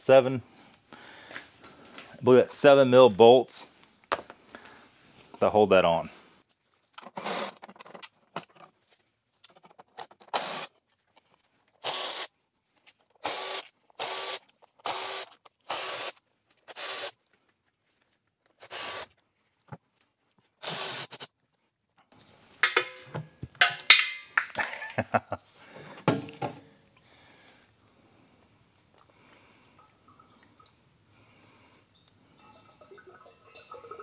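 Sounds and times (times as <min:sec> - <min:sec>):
electric ratchet spinning bolts: 0:11.8 - 0:12.3, 0:13.2 - 0:17.1.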